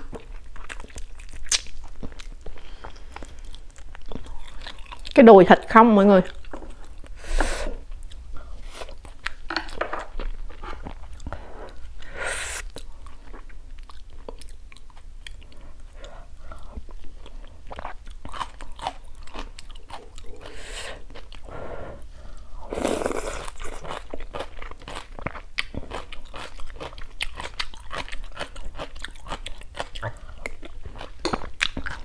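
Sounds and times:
wet chewing: 0.0s - 5.2s, 12.6s - 21.5s, 22.8s - 32.0s
lip smacks: 0.9s - 2.3s.

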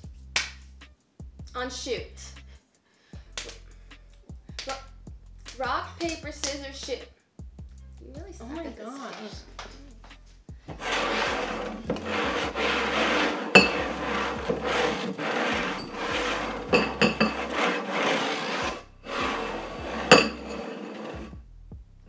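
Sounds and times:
paper buckets scraping on table: 10.7s - 21.4s.

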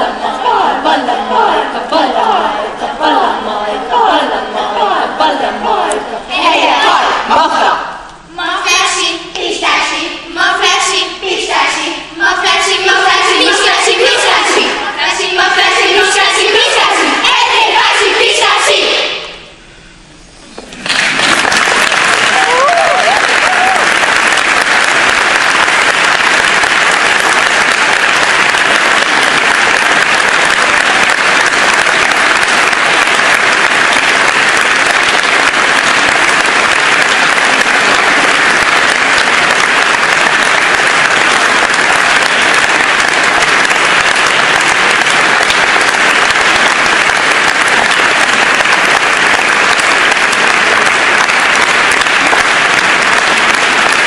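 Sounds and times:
audience applauding: 20.7s - 54.0s.

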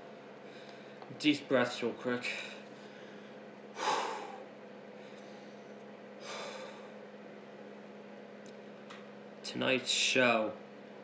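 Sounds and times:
steady low hum: 0.0s - 11.0s
man breathing deeply: 2.3s - 7.0s.

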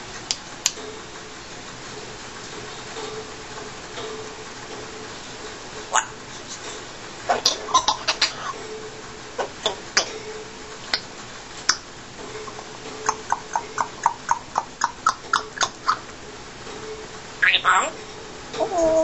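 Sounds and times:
parrot clicking: 0.2s - 0.9s, 10.9s - 16.1s.

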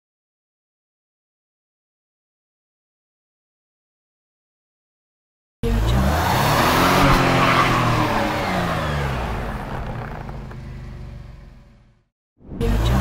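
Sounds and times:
car engine revving with tire spinning: 5.6s - 12.0s.

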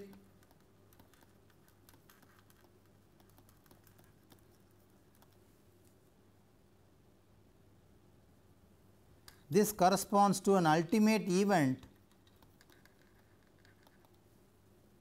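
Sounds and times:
stylus tapping on tablet screen: 0.0s - 5.4s, 11.8s - 14.2s
low room hum: 0.0s - 15.0s.

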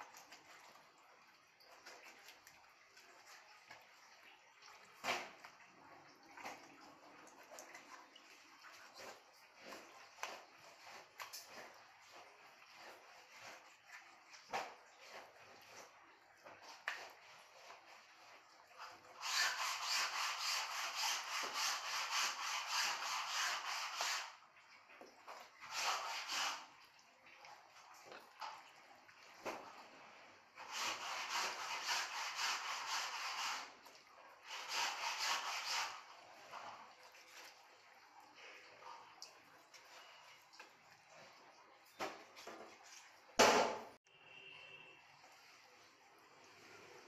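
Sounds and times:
knife sawing on cutting board: 19.2s - 24.4s, 25.7s - 26.7s, 30.6s - 33.8s, 34.5s - 36.1s.

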